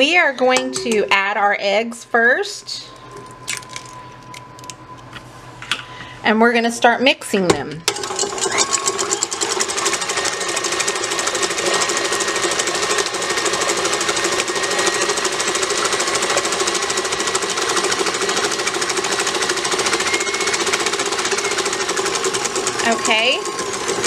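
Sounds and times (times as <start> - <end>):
electric mixer whipping eggs: 7.9 - 24.0.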